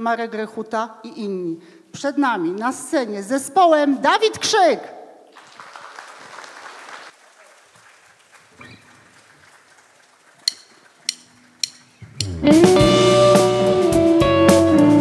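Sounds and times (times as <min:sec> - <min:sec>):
audience applause: 0:05.3 - 0:11.6
drumsticks clicking: 0:10.4 - 0:12.4.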